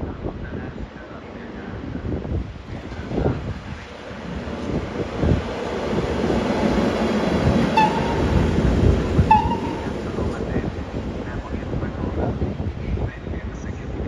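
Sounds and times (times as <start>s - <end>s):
freight train rail rumble: 0.0s - 14.0s
brief high-pitched tones: 7.8s - 8.5s, 9.3s - 9.9s.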